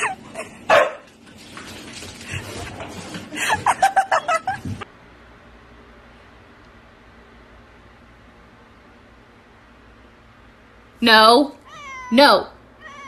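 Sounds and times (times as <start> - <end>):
person laughing: 3.3 - 4.8.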